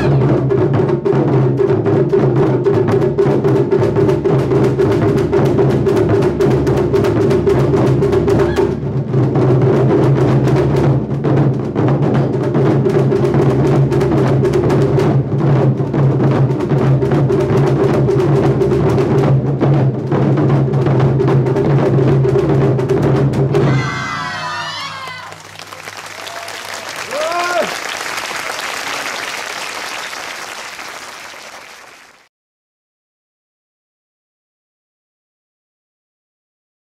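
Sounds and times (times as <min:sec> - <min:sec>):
taiko drums beaten fast: 0:00.0 - 0:28.2
players shouting: 0:23.6 - 0:27.9.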